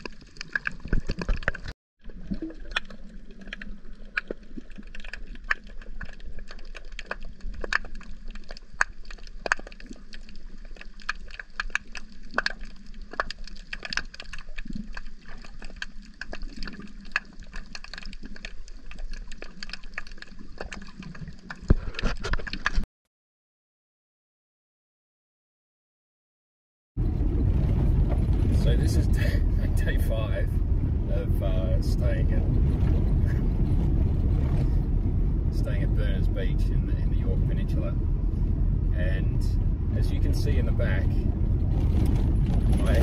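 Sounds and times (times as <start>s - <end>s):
low rumble of moving water: 0.0s - 22.8s, 27.0s - 43.0s
underwater crackle of clicks: 0.0s - 22.8s.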